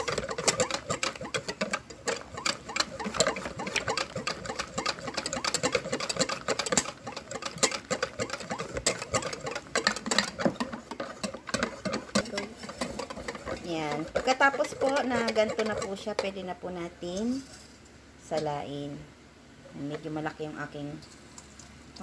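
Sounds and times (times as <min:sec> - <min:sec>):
utensil clicking against bowl: 0:00.0 - 0:16.4
batter sloshing: 0:00.0 - 0:17.8
utensil stirring batter in bowl: 0:00.0 - 0:17.9.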